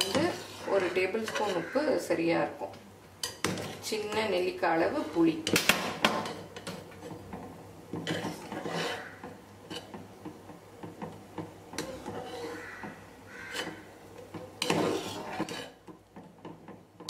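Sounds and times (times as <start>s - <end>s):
metal skimmer scraping a pot: 0.0s - 1.8s, 6.2s - 10.1s, 11.7s - 15.9s.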